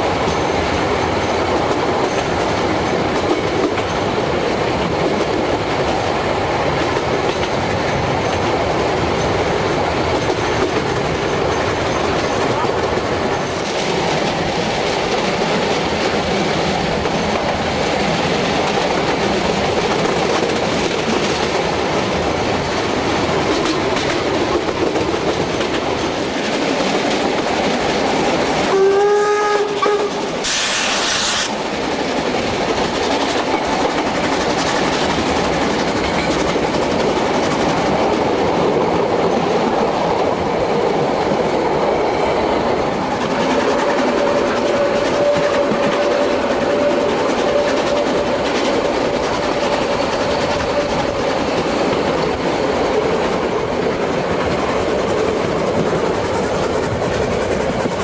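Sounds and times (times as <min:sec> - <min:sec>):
train wheels rolling on rails: 0:00.0 - 0:58.0
steam locomotive whistle: 0:28.7 - 0:31.5, 0:43.9 - 0:48.5
short steam hiss: 0:30.4 - 0:31.6.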